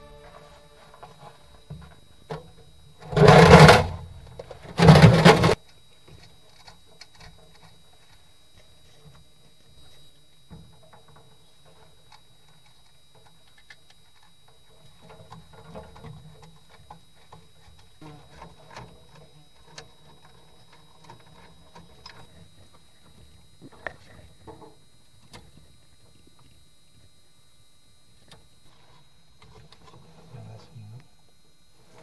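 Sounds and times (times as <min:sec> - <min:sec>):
faint high tone: 0:00.0 - 0:02.0.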